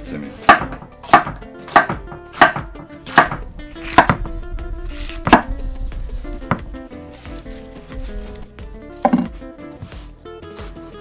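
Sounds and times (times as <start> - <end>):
knife chopping on cutting board: 0.3 - 4.3, 5.0 - 5.5, 6.5 - 6.7, 9.0 - 10.0.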